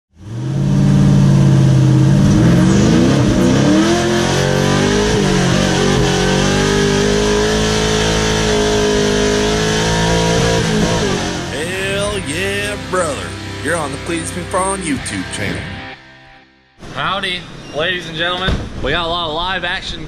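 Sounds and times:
vehicle engine revving inside cab: 0:00.2 - 0:14.8.

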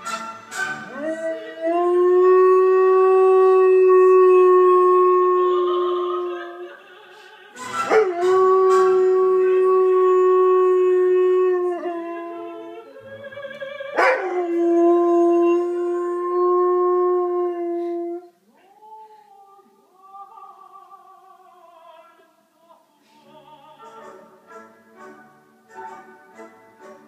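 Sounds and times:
opera music: 0:00.0 - 0:27.0
dog howling: 0:07.9 - 0:12.8, 0:14.0 - 0:18.3.

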